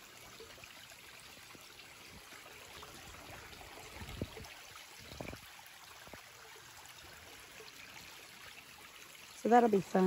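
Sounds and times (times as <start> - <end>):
creek trickling over rock: 0.0 - 10.0.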